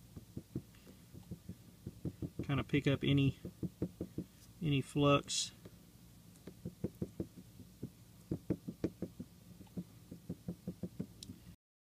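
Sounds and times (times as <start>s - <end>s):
cotton swab tapping circuit board: 0.2s - 2.7s, 6.4s - 11.4s.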